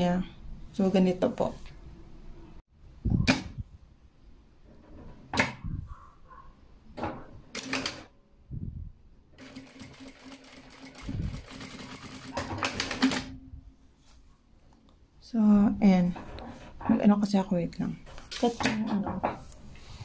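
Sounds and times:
sewing machine stitching: 9.4 - 13.4.

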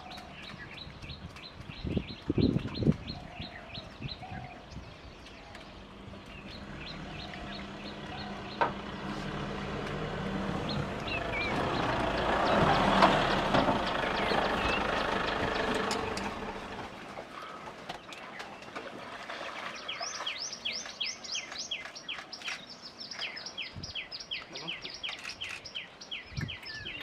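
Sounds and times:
bird chirping: 0.0 - 9.3, 10.3 - 16.8, 19.4 - 27.0
vehicle engine running: 5.9 - 17.4.

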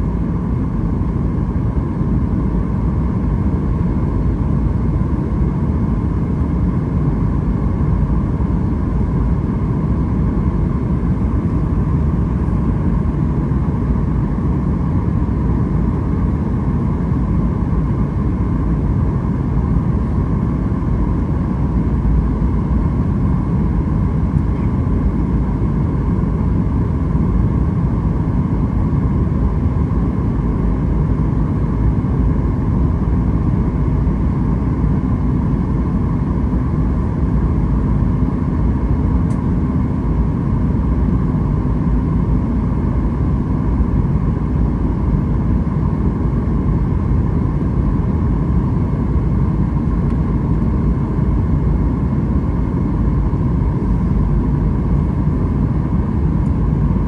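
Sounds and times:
faint steady whine: 0.0 - 57.0.

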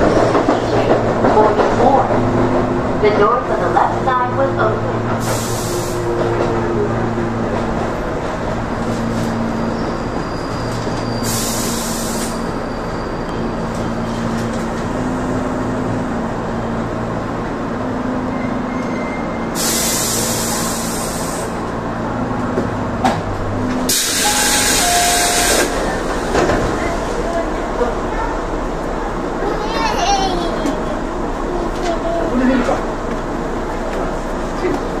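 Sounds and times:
train running rumble: 0.0 - 35.0
air brake hiss: 5.2 - 6.0, 11.2 - 12.4, 19.6 - 21.6, 23.9 - 25.7.

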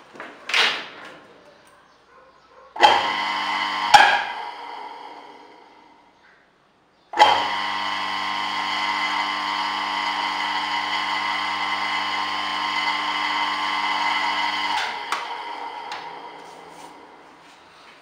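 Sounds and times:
electric motor whirring: 2.8 - 5.9, 7.2 - 17.3.

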